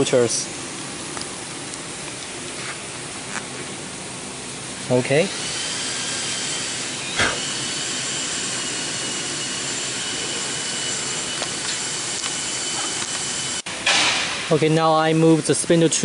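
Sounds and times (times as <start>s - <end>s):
workshop machinery rushing and whining: 4.4s - 14.6s.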